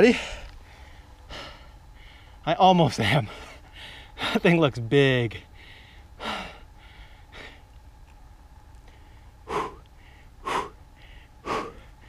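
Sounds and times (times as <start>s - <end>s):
man breathing hard: 0.0s - 2.4s, 3.2s - 4.4s, 5.5s - 7.7s, 8.9s - 12.0s.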